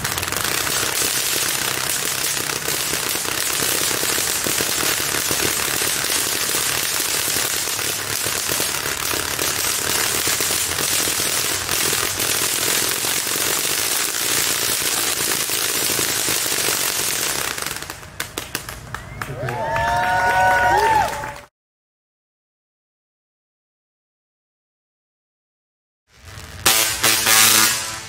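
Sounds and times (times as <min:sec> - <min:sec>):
tesla coil arcs crackling: 0:00.0 - 0:17.8, 0:26.1 - 0:28.0.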